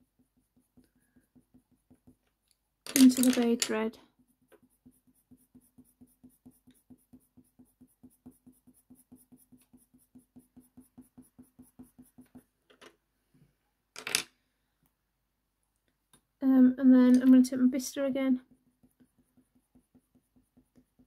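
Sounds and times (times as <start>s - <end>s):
colour pencil scratching on paper: 0.0s - 2.3s, 4.0s - 12.6s, 17.3s - 21.0s.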